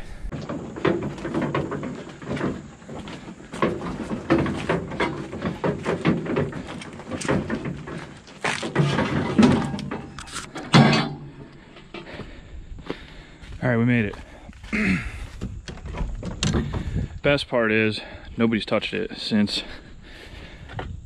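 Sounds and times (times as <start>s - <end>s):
irregular knocks and bumps: 0.0s - 17.2s
wagon rattling over gravel: 0.3s - 12.2s.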